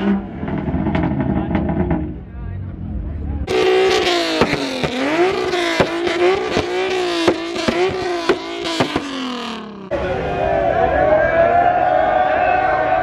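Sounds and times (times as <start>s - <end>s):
car engine revving hard: 0.0s - 2.2s, 3.5s - 9.9s
sharp exhaust cracks: 3.5s - 9.9s.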